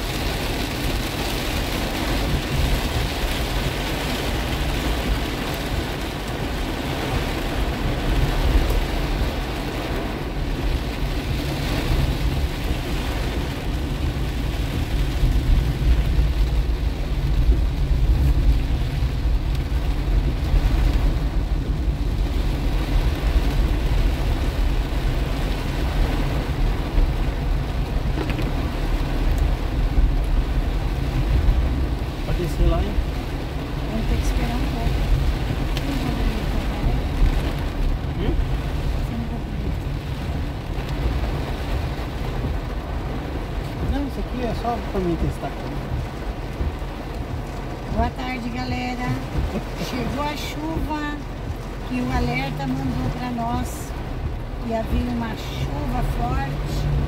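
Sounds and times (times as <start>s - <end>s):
car engine and tyres rumbling: 0.0s - 57.0s
heavy rain on car roof: 0.0s - 57.0s.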